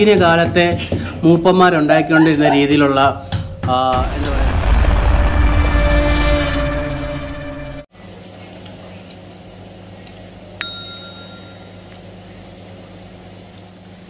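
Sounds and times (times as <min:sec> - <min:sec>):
steady low hum: 0:02.2 - 0:07.9
intro music: 0:03.9 - 0:07.9
sharp ringing clink: 0:10.6 - 0:11.8.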